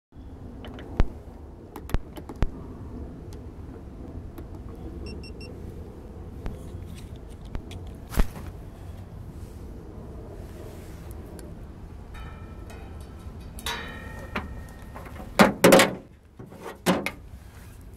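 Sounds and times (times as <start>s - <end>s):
steady low rumble: 0.1s - 17.9s
sharp knocks on a metal boat: 13.6s - 17.2s.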